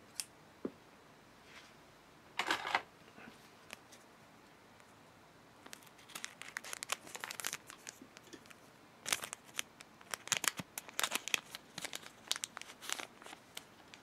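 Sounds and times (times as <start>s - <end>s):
plastic packet crinkling: 5.6s - 14.0s
scissors snipping plastic packet: 5.7s - 13.7s.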